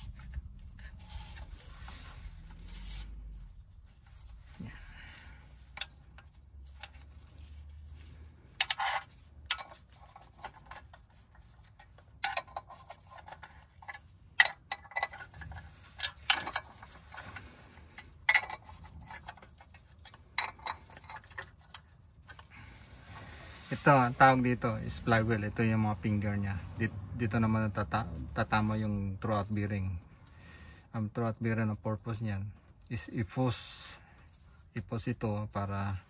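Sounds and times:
metal clicks and knocks: 12.2 - 17.0.

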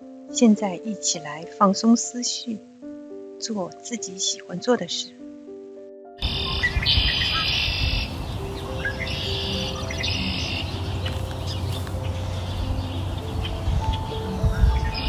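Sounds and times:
soft sustained music notes: 0.0 - 15.0
birds chirping: 6.2 - 15.0.

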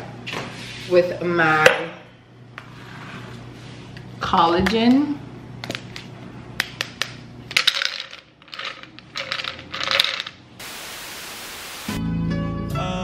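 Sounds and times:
cup contents clinking and rattling: 7.5 - 10.4
steady hiss: 10.6 - 12.0
background music: 11.9 - 13.0.

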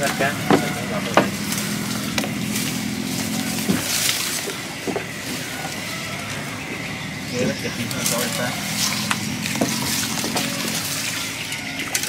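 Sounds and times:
bamboo leaves rustling: 0.0 - 12.0
small engine humming: 0.0 - 12.0
knocks on wooden boat: 0.4 - 1.4.

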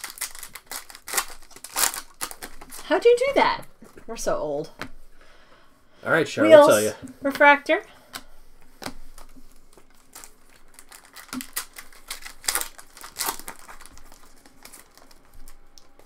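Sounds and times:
foil wrapper crinkling and tearing: 0.0 - 3.3, 8.7 - 16.0.

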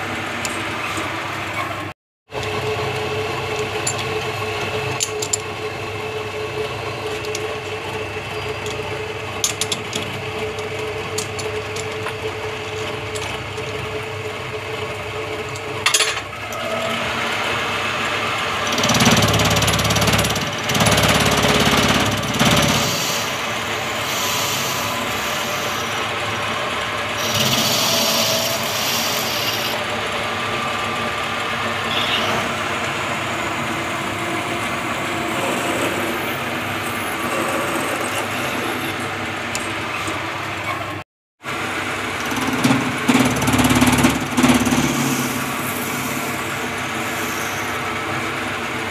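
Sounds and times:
lathe cutting noise: 16.4 - 40.6, 41.5 - 48.9
metal lathe humming: 16.4 - 40.6, 41.6 - 48.9.

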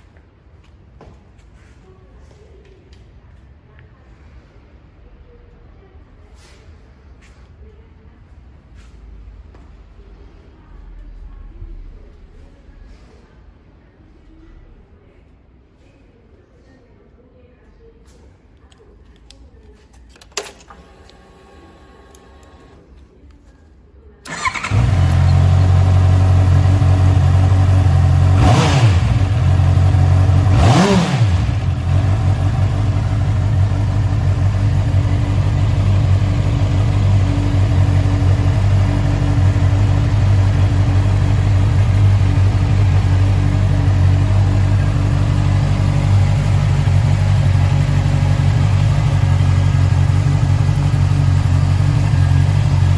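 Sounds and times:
click: 22.1 - 22.7
motorcycle engine idling and revving: 24.3 - 52.9.

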